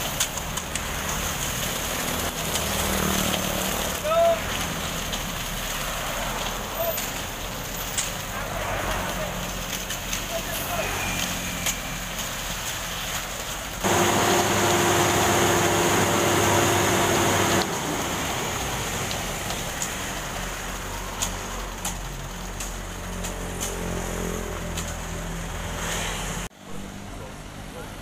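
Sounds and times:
concrete pouring down chute: 0.0s - 26.5s
diesel truck engine running: 13.8s - 19.2s.

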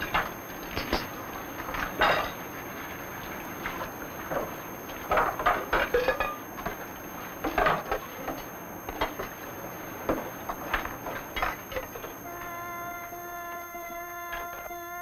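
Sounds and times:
dishes and pans clinking: 1.8s - 2.4s, 5.1s - 6.8s.

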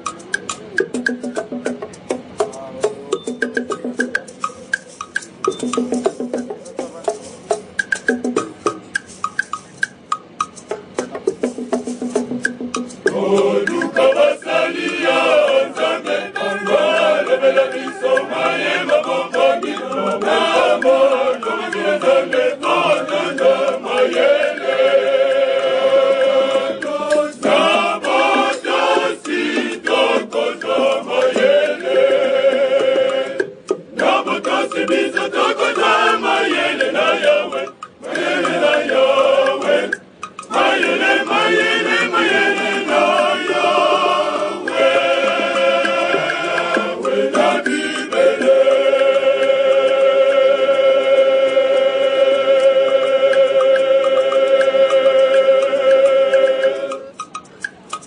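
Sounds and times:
male choir singing: 13.0s - 57.2s.

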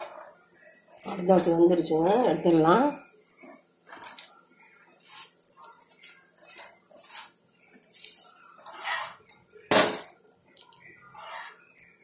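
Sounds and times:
spatula scraping on griddle: 4.9s - 9.3s, 11.0s - 11.8s.

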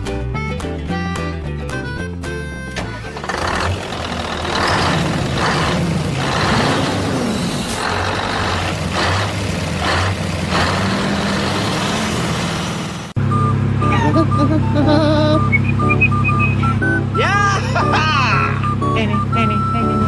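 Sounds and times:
music: 0.0s - 3.3s, 13.8s - 20.0s
heavy truck engine running: 1.8s - 20.0s.

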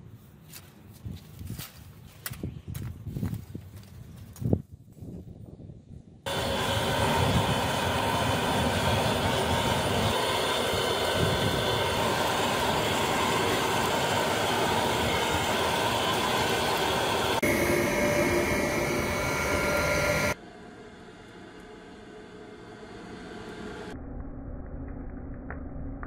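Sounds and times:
forced air roaring in forge: 6.2s - 24.0s
faint motor whine: 6.3s - 24.0s.

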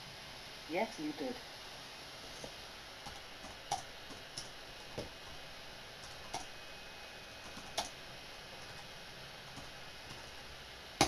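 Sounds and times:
steady background hiss: 0.0s - 11.0s
keyboard keys clicking: 7.4s - 8.0s.

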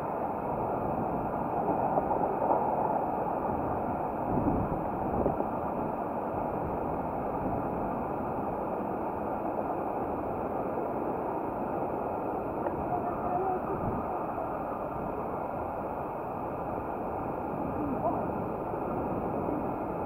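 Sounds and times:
bicycle tyres rolling on pavement: 0.0s - 20.0s
wind on microphone: 0.0s - 20.0s.

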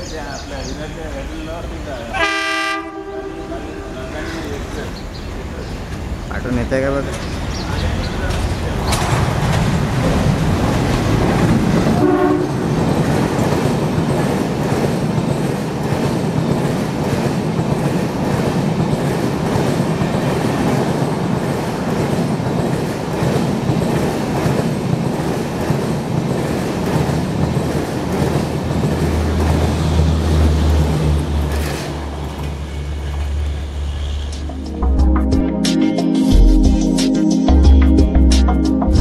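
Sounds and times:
train horn blast: 2.1s - 4.6s, 11.9s - 12.8s
wheels clattering over rail joints: 4.3s - 33.4s.

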